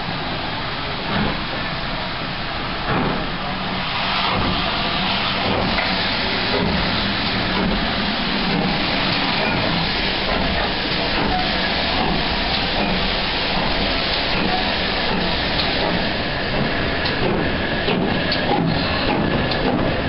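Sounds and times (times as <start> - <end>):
steam locomotive exhaust rush: 0.0 - 20.0
locomotive exhaust beats: 0.9 - 20.0.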